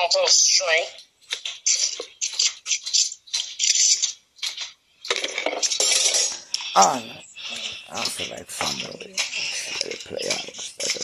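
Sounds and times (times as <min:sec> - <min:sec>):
clatter and rustling: 0:01.2 - 0:06.8
small hard objects clinking: 0:01.4 - 0:11.0.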